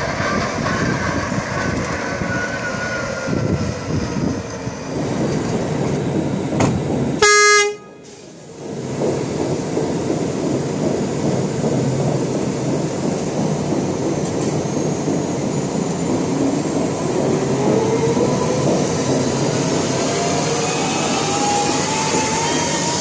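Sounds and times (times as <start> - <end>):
loud horn toot: 7.2 - 8.0.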